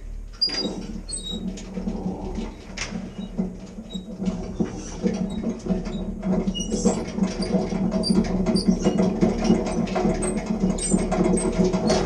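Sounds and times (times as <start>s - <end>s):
steady low hum: 0.0s - 6.4s
winch gears and cable rattling: 0.3s - 12.0s.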